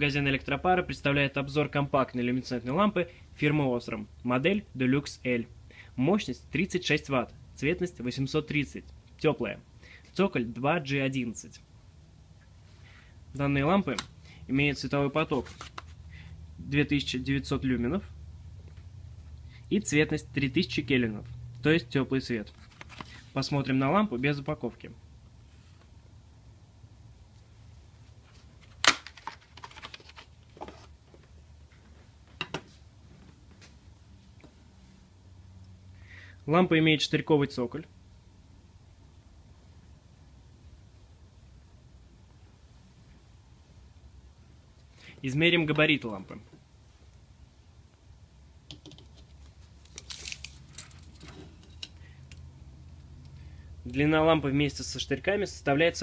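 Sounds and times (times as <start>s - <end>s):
faint low hum: 0.0s - 56.0s
cardboard rustling and clicks: 28.6s - 31.0s.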